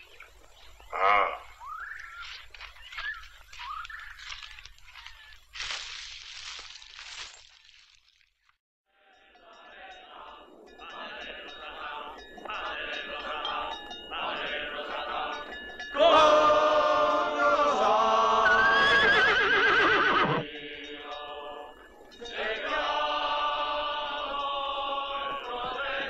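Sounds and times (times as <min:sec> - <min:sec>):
film music with chanting voices: 0:08.9 - 0:19.0, 0:20.4 - 0:26.0
horse whinnying loudly: 0:18.4 - 0:20.4.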